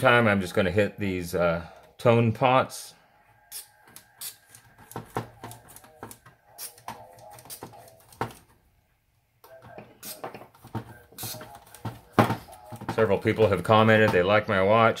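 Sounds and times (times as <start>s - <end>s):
aerosol spray spritzes: 10.0s - 10.3s.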